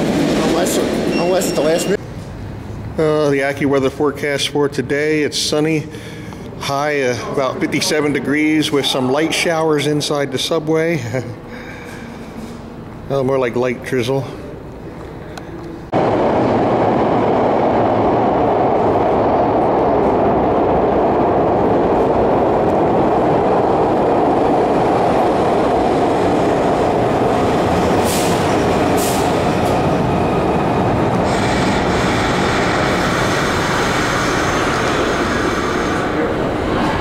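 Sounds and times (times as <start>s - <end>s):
subway train rumbling: 0.0s - 13.8s, 14.4s - 37.0s
high squealing tones: 1.1s - 2.0s.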